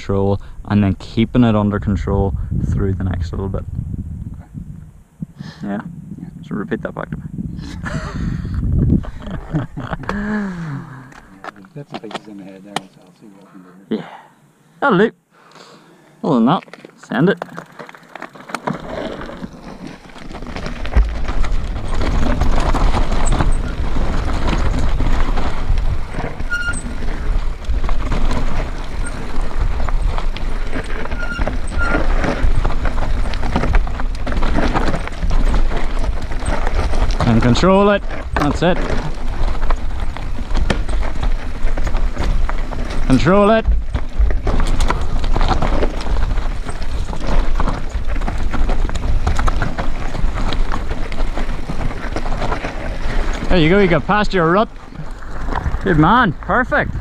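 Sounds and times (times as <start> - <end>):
wind buffeting microphone: 0.3 - 10.3, 20.2 - 57.0
bike rattling: 7.2 - 13.1, 16.3 - 57.0
tyres crunching over stones: 8.9 - 13.4, 16.3 - 57.0.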